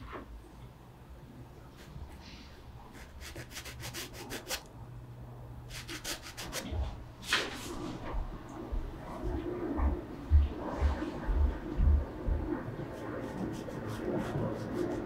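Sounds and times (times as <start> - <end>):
paintbrush strokes on canvas: 12.9 - 15.0.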